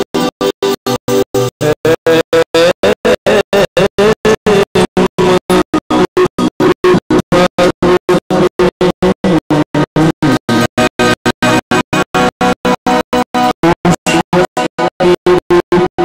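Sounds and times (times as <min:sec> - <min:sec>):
keyboard accompaniment: 0:00.0 - 0:16.0
man singing: 0:01.6 - 0:06.3, 0:07.3 - 0:10.4, 0:13.6 - 0:16.0.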